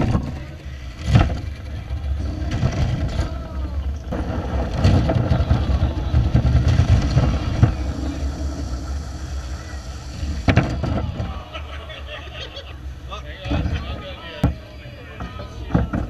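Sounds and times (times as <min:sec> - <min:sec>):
plastic toy train crashing: 0:00.0 - 0:11.4
murmur of voices: 0:00.0 - 0:16.0
toy train wheels rumbling: 0:00.0 - 0:16.0.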